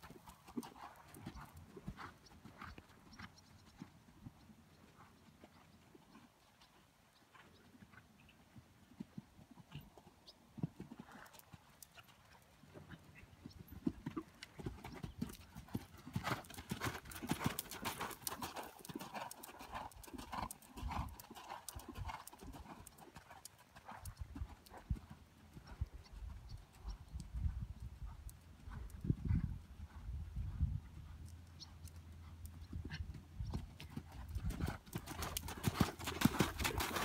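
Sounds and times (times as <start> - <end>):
hoofbeats on sand: 33.6 - 37.0.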